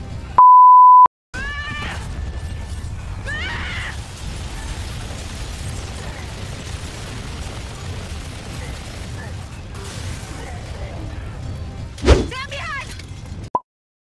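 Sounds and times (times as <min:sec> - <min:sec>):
pure beep tone: 0:00.4 - 0:01.1.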